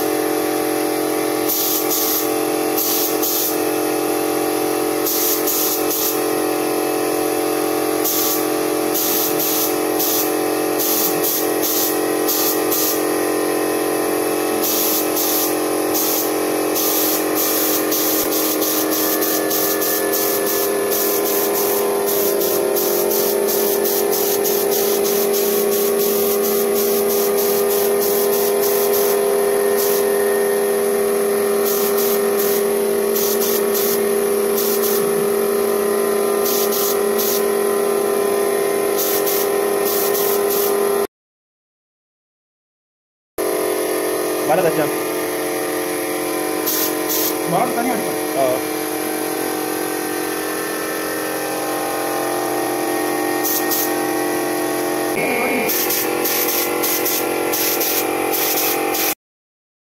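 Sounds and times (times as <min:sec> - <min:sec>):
spray gun hissing: 0:01.4 - 0:03.7, 0:05.0 - 0:06.3, 0:08.0 - 0:13.1, 0:14.6 - 0:30.3, 0:31.6 - 0:35.2, 0:36.4 - 0:37.5, 0:39.0 - 0:40.6, 0:46.6 - 0:48.5, 0:53.4 - 0:54.0, 0:55.2 - 0:59.2
steady hum: 0:55.1 - 0:56.3.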